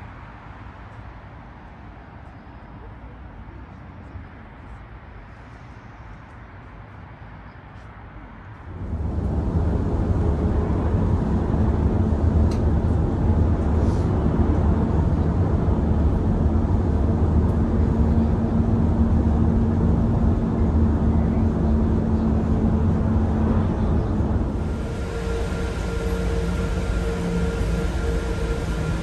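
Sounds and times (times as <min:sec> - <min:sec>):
vehicle engine rumble: 0:07.8 - 0:29.0
steady hum: 0:08.7 - 0:29.0.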